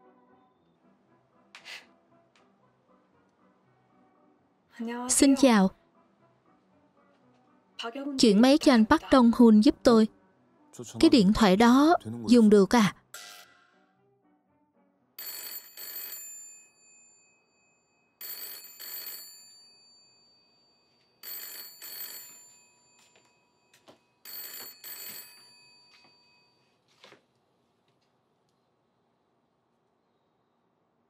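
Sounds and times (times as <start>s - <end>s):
telephone bell ringing: 15.2s - 26.6s.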